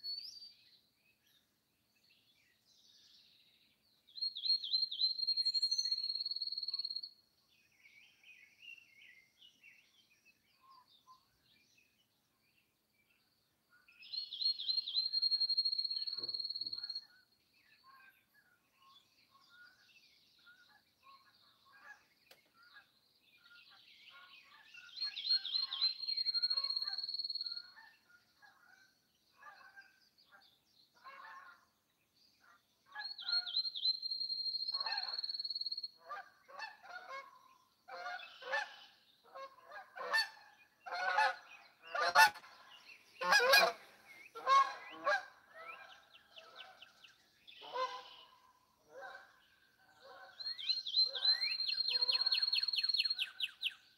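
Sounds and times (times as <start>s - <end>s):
geese honking: 40.9s - 42.4s, 43.2s - 43.8s, 44.4s - 45.3s.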